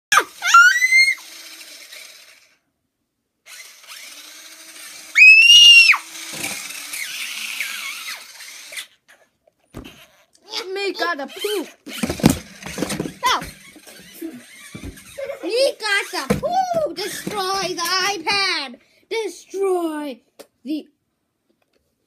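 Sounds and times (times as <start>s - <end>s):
child shrieking: 0.1s - 1.3s, 5.1s - 6.1s
toy car motor whirring: 0.1s - 2.6s, 3.4s - 18.5s.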